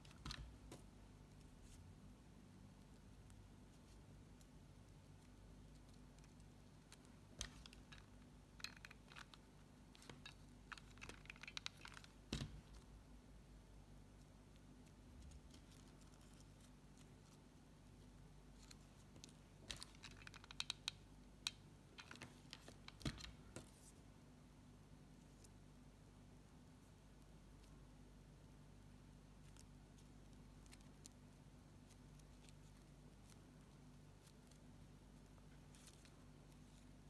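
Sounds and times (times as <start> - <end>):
ribbon rustling and clicking: 2.7 - 13.0, 14.2 - 24.0, 29.3 - 37.0.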